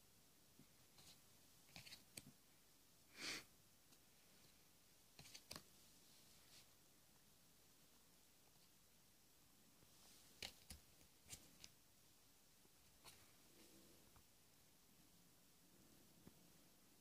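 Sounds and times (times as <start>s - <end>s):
cards clicking and tapping: 10.4s - 11.7s.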